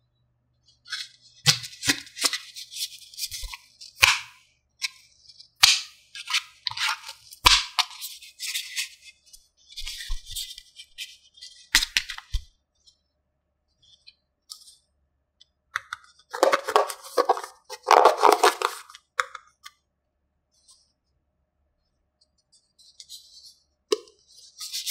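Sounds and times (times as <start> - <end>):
plastic pieces rattling: 16.3 - 18.9.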